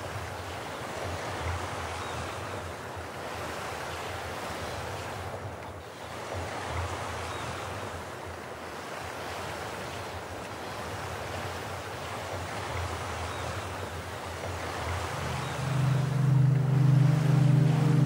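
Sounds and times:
steady rushing noise: 0:14.8 - 0:18.0
low hum: 0:14.9 - 0:18.0.

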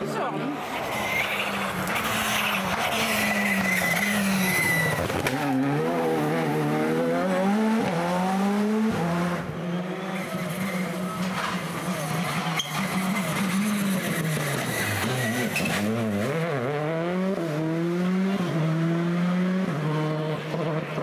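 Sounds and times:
rally car engine revving: 0:00.0 - 0:21.0
tyre squeal: 0:00.7 - 0:05.5, 0:10.2 - 0:16.0.

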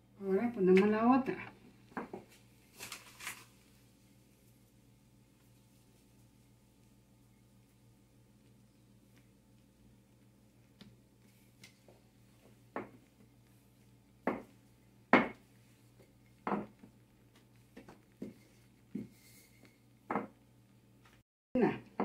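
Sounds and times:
faint steady hum: 0:00.0 - 0:22.0
rolling pin knocking on countertop: 0:12.7 - 0:13.0, 0:14.2 - 0:14.5, 0:15.1 - 0:15.4, 0:16.4 - 0:16.9, 0:20.1 - 0:20.4.

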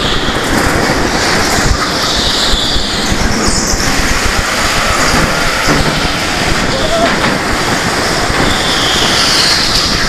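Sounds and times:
go-kart engine: 0:00.0 - 0:10.0
high tyre squeal: 0:01.7 - 0:10.0.

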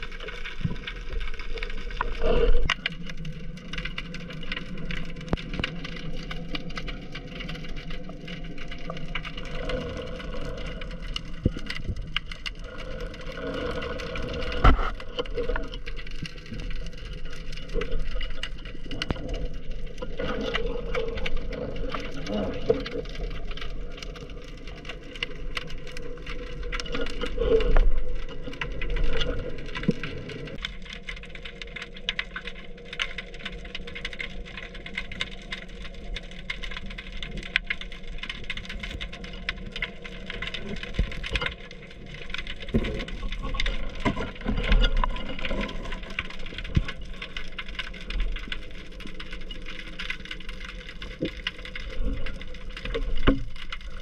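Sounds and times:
muffled underwater rumble and hum: 0:00.0 - 0:54.0
small clicks and knocks: 0:13.4 - 0:54.0.

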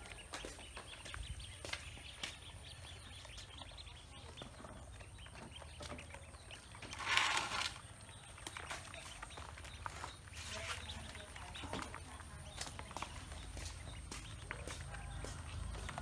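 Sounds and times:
ducklings pecking and scrabbling: 0:00.0 - 0:16.0
scuffling in plastic basin: 0:05.4 - 0:07.9.

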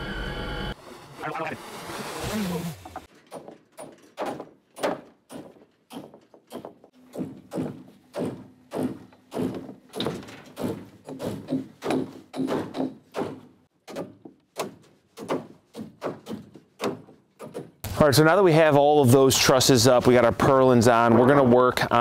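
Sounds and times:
hammer driving nails into wood: 0:03.1 - 0:17.8.

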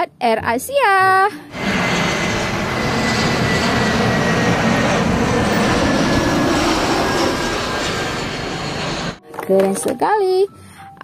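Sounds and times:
high engine whine: 0:01.5 - 0:09.2
jet engines roaring: 0:01.5 - 0:09.2.

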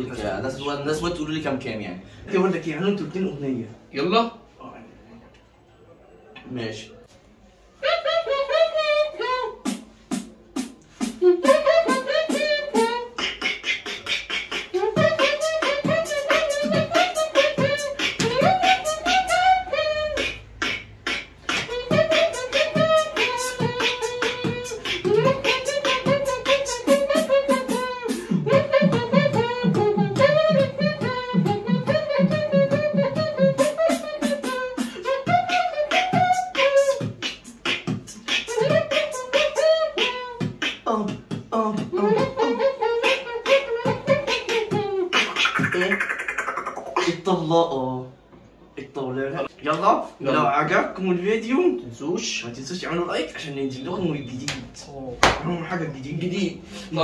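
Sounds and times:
person beatboxing: 0:07.8 - 0:47.5.

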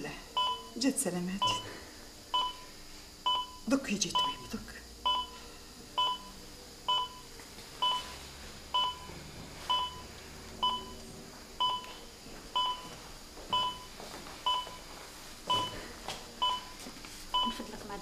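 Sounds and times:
heart monitor beeping: 0:00.3 - 0:17.7.

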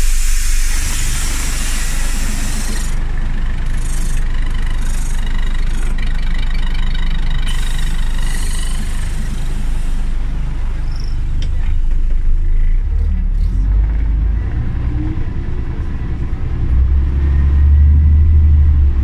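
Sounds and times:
air hiss: 0:00.0 - 0:03.0, 0:07.5 - 0:10.3
bus engine rumble: 0:00.0 - 0:19.0.

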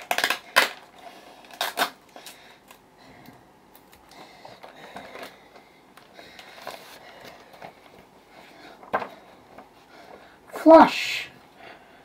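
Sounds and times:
packaging rustling and scraping: 0:03.7 - 0:10.2.

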